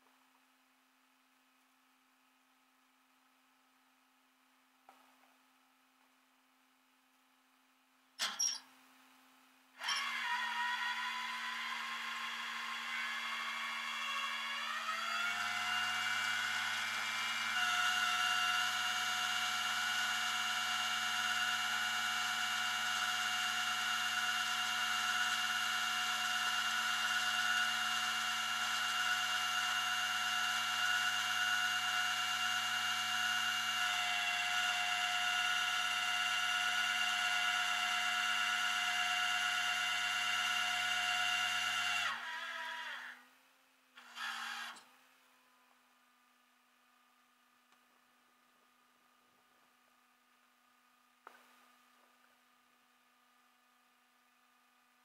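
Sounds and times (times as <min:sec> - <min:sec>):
tow truck winch whining: 0:09.8 - 0:43.2, 0:44.0 - 0:44.9.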